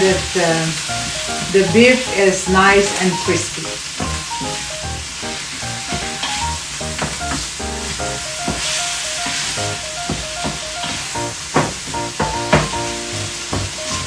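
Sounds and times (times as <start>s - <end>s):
meat sizzling in a pan: 0.0s - 14.0s
wooden spatulas knocking on pan: 4.0s - 4.6s, 7.0s - 8.7s, 10.0s - 12.9s, 13.5s - 14.0s.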